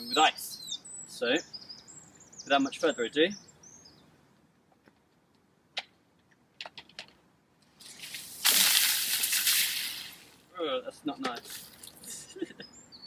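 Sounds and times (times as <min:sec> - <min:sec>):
rice pattering down: 0:07.8 - 0:10.3.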